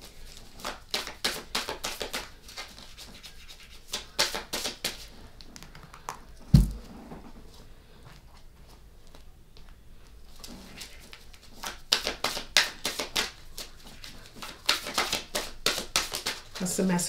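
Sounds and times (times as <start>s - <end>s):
thump: 6.5s - 6.8s
cards being shuffled: 10.7s - 16.7s.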